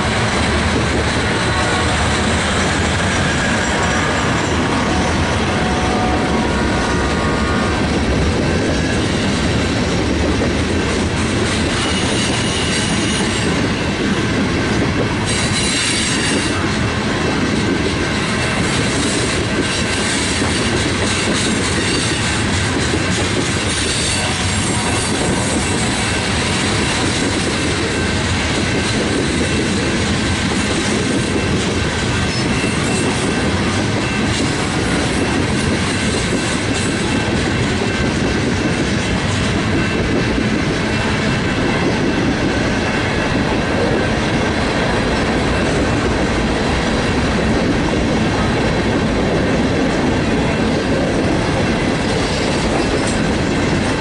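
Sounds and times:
clickety-clack over rail joints: 0.0s - 54.0s
train wheels rumbling on rail: 0.0s - 54.0s.

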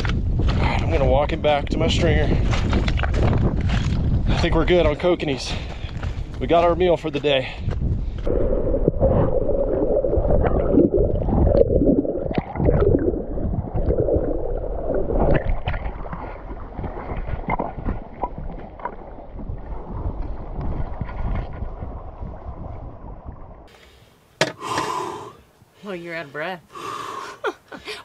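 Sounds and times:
water gurgling and sloshing: 8.2s - 23.7s.

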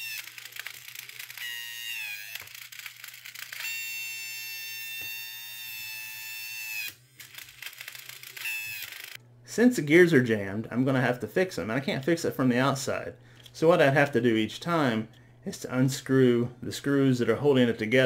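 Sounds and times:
plastic gears clicking: 0.0s - 4.0s, 6.7s - 9.2s
small electric motor whining: 0.0s - 9.2s.

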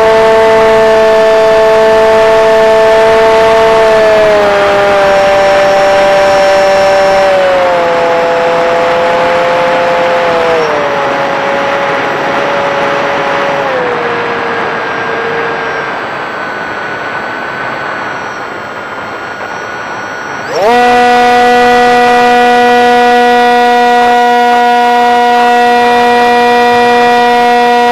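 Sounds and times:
model airplane motor whine: 0.0s - 27.9s
rushing air: 4.5s - 23.6s.

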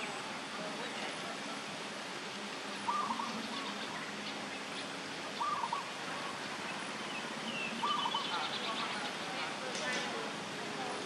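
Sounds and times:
steady background hiss: 0.0s - 11.0s
bird calling: 2.8s - 9.2s.

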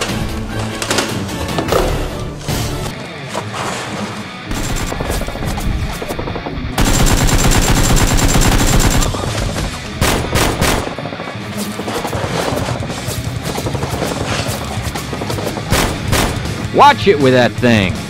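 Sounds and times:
rapid automatic gunfire: 4.5s - 9.4s, 10.0s - 11.1s, 13.5s - 16.6s.

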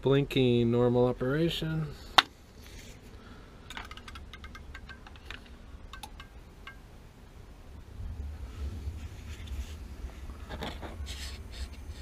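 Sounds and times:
faint low rumble: 5.4s - 12.0s.

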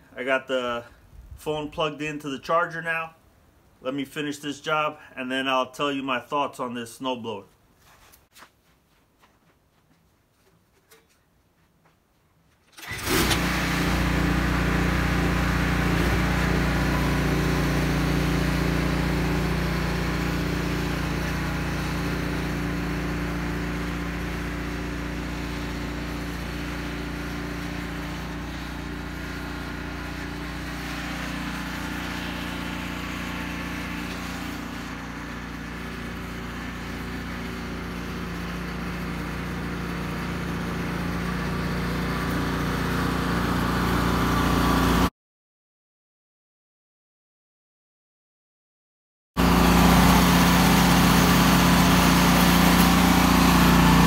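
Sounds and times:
snow blower engine running: 12.8s - 45.1s, 49.4s - 54.0s.

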